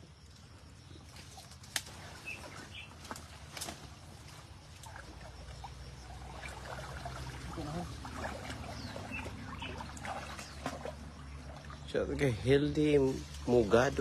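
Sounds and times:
stream water trickling: 0:00.2 - 0:14.0
wading in rubber boots: 0:01.0 - 0:12.2
small splashes: 0:01.0 - 0:14.0.

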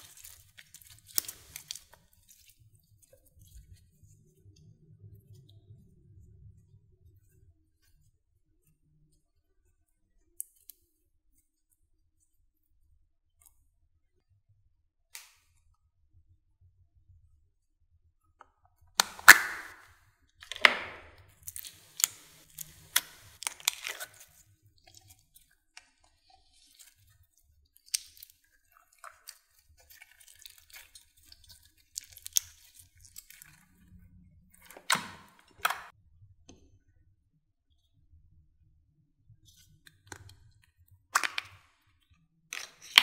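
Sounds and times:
slime squishing: 0:00.0 - 0:04.2, 0:19.0 - 0:35.9, 0:42.5 - 0:43.0.

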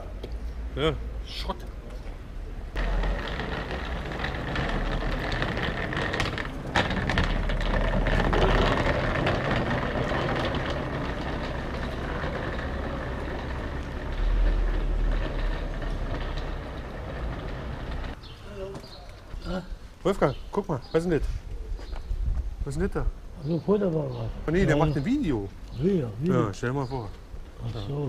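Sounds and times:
road noise: 0:00.0 - 0:28.0
truck engine rumble: 0:01.6 - 0:18.3.

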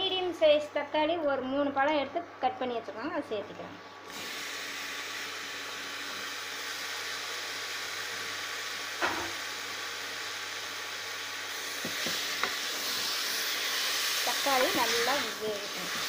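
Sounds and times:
tomatoes sizzling in hot oil: 0:04.1 - 0:16.0.

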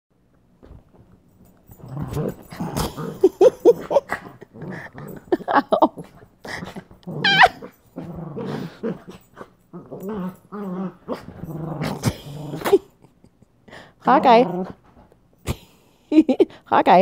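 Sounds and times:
small dogs play-growling: 0:01.4 - 0:13.1, 0:14.0 - 0:15.1
dog yip: 0:07.2 - 0:07.6.

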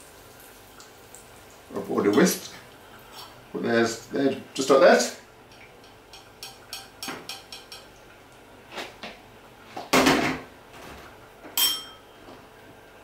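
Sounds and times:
ringing clink: 0:11.6 - 0:12.1.

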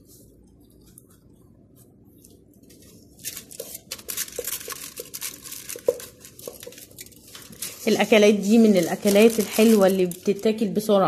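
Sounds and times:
aluminium foil crinkling: 0:02.6 - 0:11.0.

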